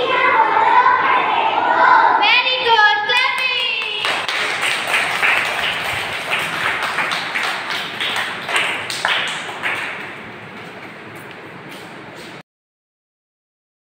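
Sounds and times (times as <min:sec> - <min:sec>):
children clapping in time: 0:03.1 - 0:11.9.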